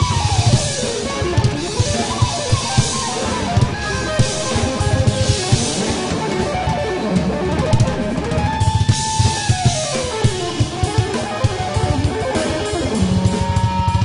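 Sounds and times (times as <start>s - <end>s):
electric guitar lead line: 0.0s - 14.0s
jazz fusion band: 0.0s - 14.0s.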